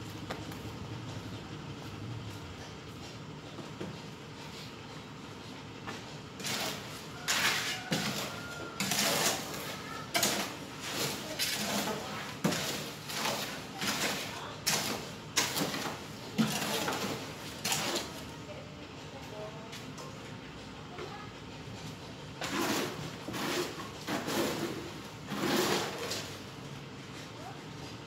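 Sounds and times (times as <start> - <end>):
mortar stirred in steel wheelbarrow: 6.4 - 18.3, 22.4 - 26.4.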